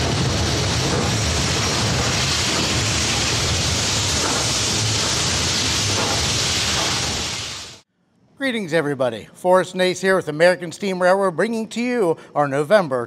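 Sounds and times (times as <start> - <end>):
steam locomotive roaring: 0.0 - 7.8.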